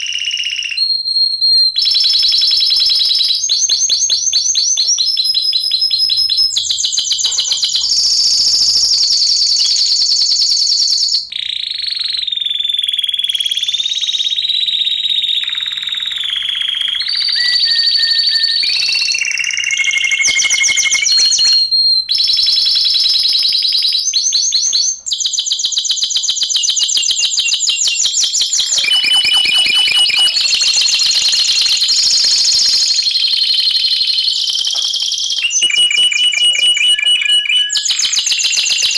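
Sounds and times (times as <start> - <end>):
canaries singing trills: 3.3 - 10.2, 11.0 - 38.9.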